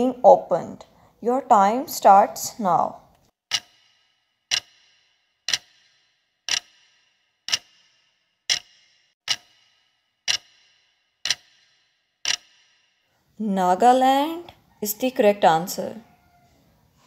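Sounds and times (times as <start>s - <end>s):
clock ticking: 3.5s - 13.1s.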